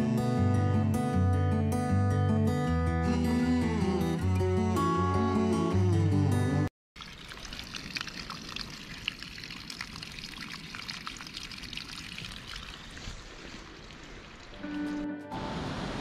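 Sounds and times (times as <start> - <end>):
guitar music: 0.0 - 6.7, 14.6 - 16.0
water trickling onto stones: 7.0 - 14.6.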